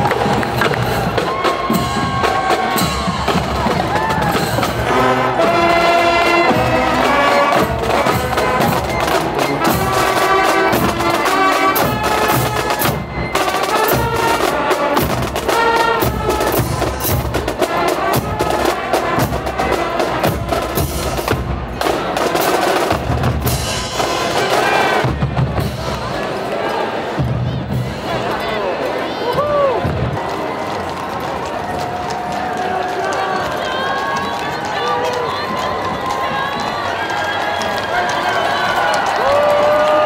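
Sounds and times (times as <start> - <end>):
brass and saxophones playing tune: 0.1 - 22.6
snare and bass drums: 6.5 - 26.2.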